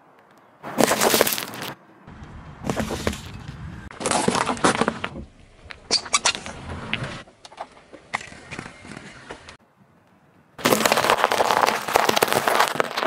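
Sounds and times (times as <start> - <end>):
rubber duck squeaking: 5.9 - 6.5
foil-wrapped eggs crunching: 10.6 - 13.0.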